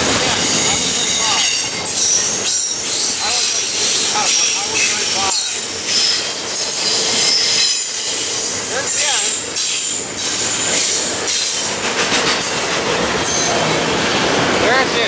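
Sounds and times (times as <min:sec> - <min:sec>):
freight train wheels rumbling: 0:00.0 - 0:15.0
wheel squeal: 0:00.2 - 0:11.7.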